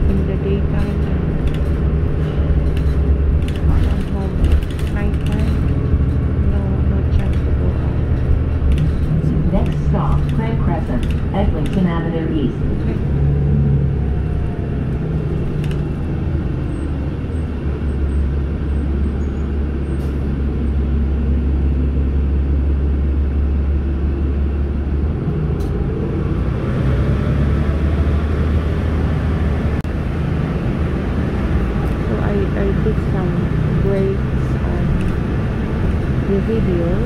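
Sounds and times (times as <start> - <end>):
bus engine and road rumble: 0.0 - 37.0
light clicks and rattles: 0.1 - 6.2.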